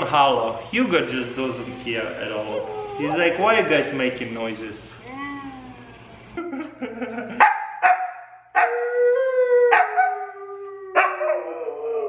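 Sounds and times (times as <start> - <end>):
dogs howling: 1.2 - 3.9, 8.6 - 12.0
dog howls from laptop: 8.6 - 12.0.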